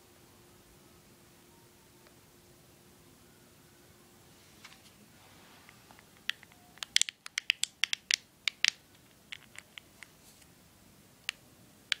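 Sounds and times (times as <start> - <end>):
plastic device clicks and taps: 6.0 - 9.9, 11.2 - 12.0.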